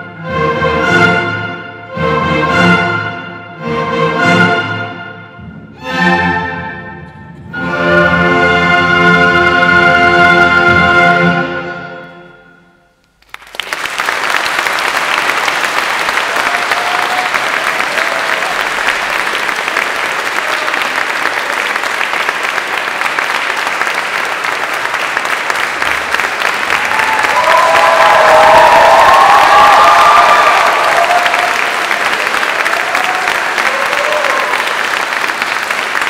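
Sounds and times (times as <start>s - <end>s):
audience applauding: 13.1s - 36.0s
audience cheering: 13.4s - 36.0s.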